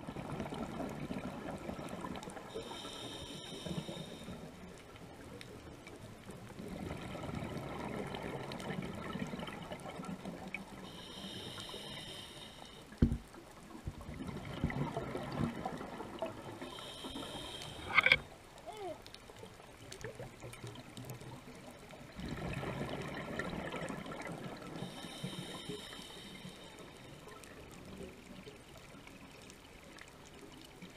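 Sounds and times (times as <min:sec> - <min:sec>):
hissing regulator inhale: 0:02.5 - 0:04.4, 0:10.9 - 0:13.0, 0:16.6 - 0:18.2, 0:24.8 - 0:27.0.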